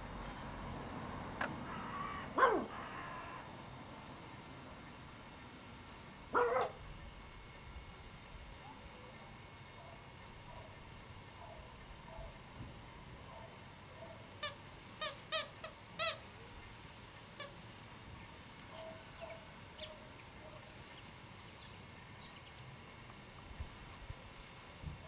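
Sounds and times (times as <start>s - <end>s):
puppy yapping: 2.4s - 2.7s, 6.4s - 6.8s.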